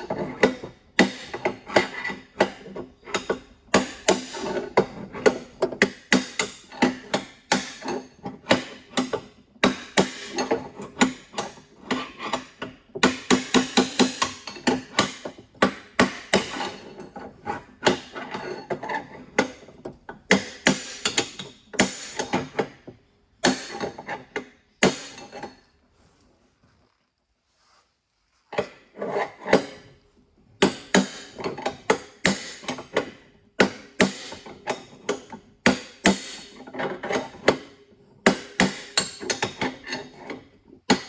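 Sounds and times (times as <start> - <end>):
hammer striking metal punch: 20.3 - 22.8, 23.4 - 25.6, 30.6 - 36.6.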